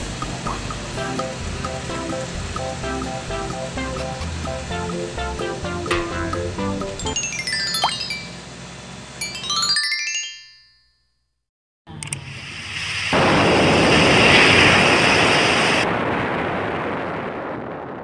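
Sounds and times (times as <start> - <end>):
sparkling sliding chime tones: 7.0 - 10.9
explosion-like rush: 13.0 - 18.0.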